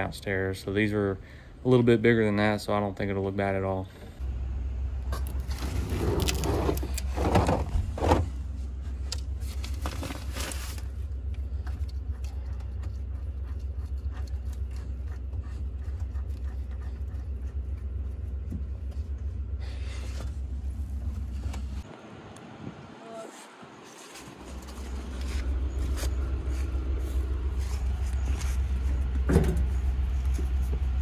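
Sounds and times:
steady low rumble: 4.2 - 23.0, 23.6 - 31.0
metal door rattling and scraping: 5.6 - 8.4.

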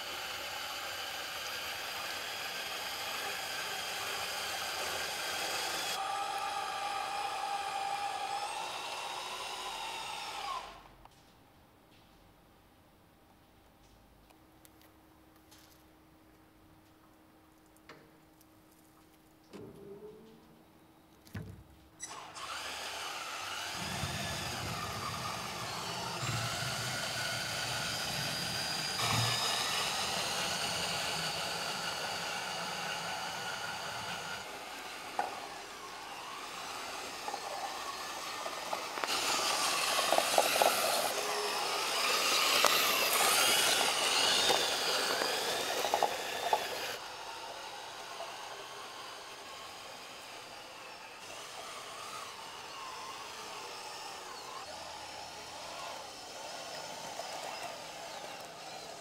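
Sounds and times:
toy tractor electric motor whining: 0.0 - 11.0, 22.0 - 59.0
clicks and rattles in loose soil: 36.9 - 47.0.

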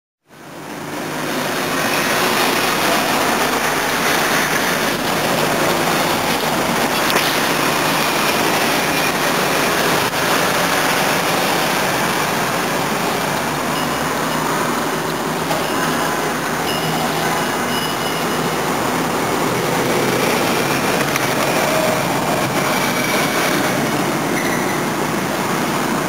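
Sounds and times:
street traffic noise: 0.2 - 26.0.

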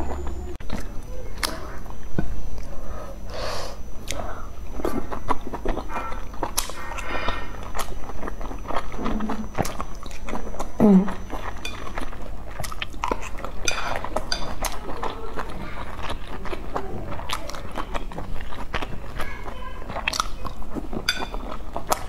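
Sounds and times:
chewing and mouth sounds: 0.0 - 3.0, 3.8 - 22.0
voice humming: 10.6 - 11.4
chopsticks clicking on metal bowl: 21.1 - 21.4.

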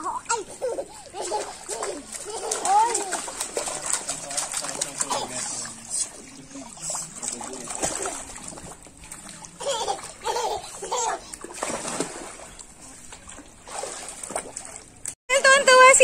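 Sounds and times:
child voice sounds: 0.0 - 3.3
water splashing and sloshing: 0.0 - 16.0.

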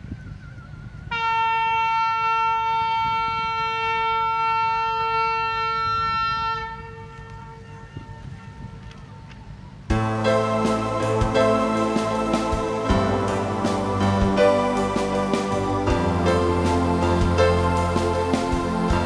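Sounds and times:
wind rumble: 5.8 - 19.0
horn blast on high note: 9.9 - 19.0.

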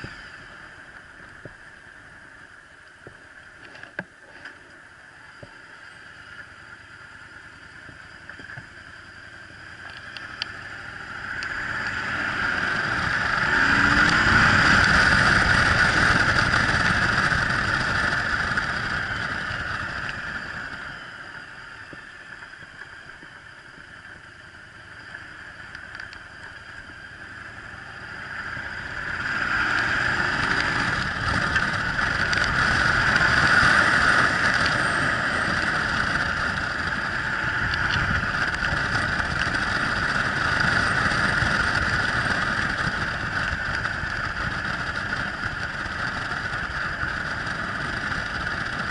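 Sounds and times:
motorcycle engine running: 0.0 - 48.9.

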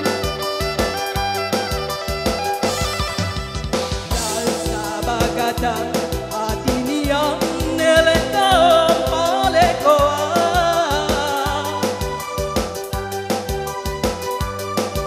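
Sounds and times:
live band music: 0.0 - 15.0
steady drum beat: 0.0 - 15.0
person singing: 4.1 - 12.4.

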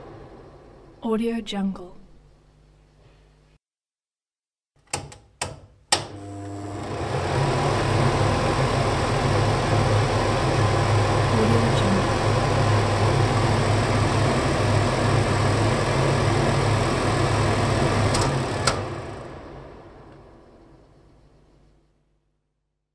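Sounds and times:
extractor fan running: 6.0 - 21.9.

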